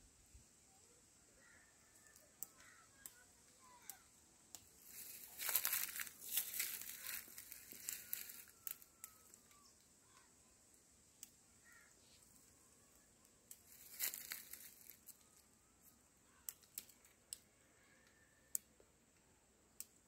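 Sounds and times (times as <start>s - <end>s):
coffee cherries crackling and rustling: 1.4s - 9.9s, 11.7s - 17.5s.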